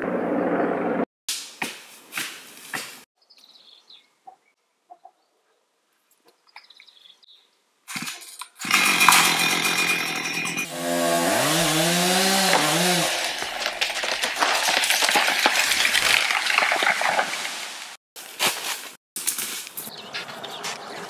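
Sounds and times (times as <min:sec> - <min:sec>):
chainsaw cutting wood: 0:08.6 - 0:17.2.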